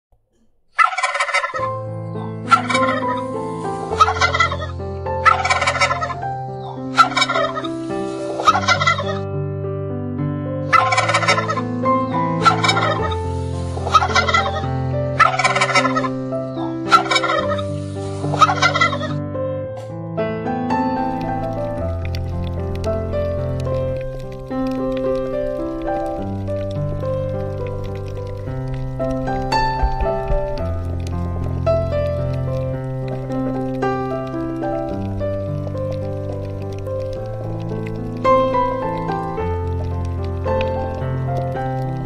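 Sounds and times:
background music low notes: 0.6 - 42.0
game bird gobbling calls: 0.8 - 9.2, 10.7 - 19.2.

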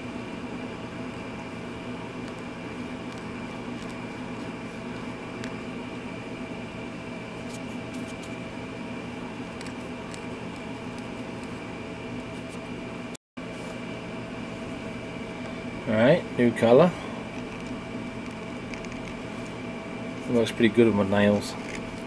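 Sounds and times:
machine hum: 0.0 - 22.0
fingernail scraping plastic: 17.4 - 19.2.

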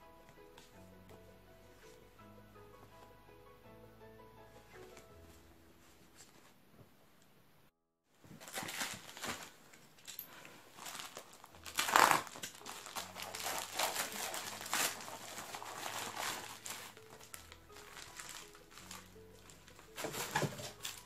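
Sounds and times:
plastic packaging crinkling: 8.4 - 21.0.

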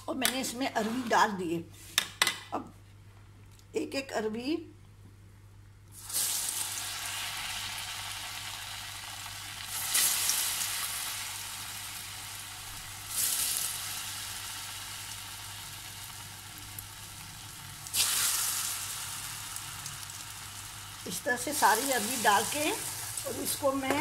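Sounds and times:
battered pieces sizzling in hot oil: 5.9 - 24.0.

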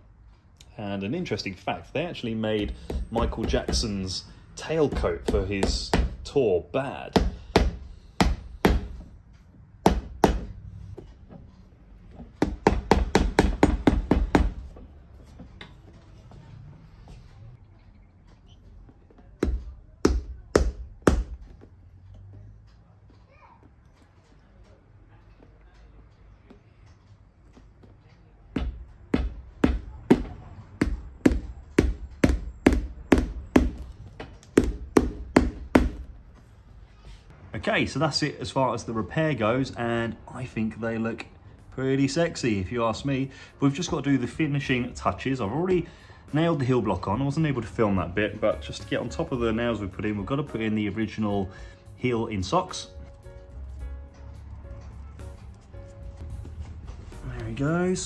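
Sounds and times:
hammer tapping tacks into heel: 28.6 - 36.1.

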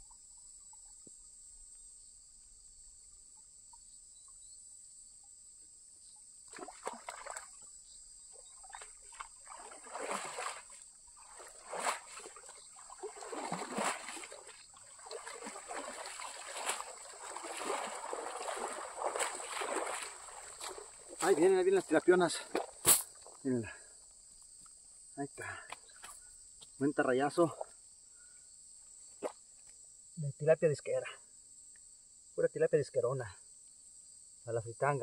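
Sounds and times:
high chirring of insects: 0.0 - 35.0
water splashing and sloshing: 6.5 - 7.7, 8.3 - 23.4.

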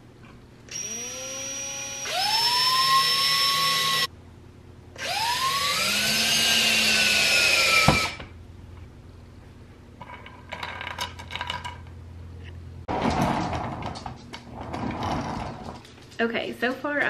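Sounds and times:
cordless drill driving screws: 0.7 - 4.1, 5.0 - 8.2.

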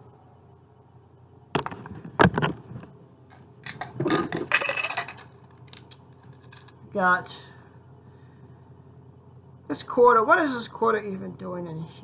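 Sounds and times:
coins clinking and jingling: 3.7 - 6.8.

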